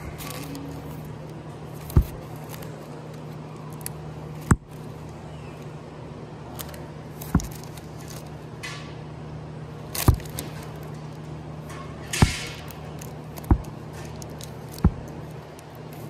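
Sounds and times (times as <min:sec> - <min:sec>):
records flipped in plastic sleeves: 0:00.0 - 0:05.1
steady low hum: 0:00.0 - 0:16.0.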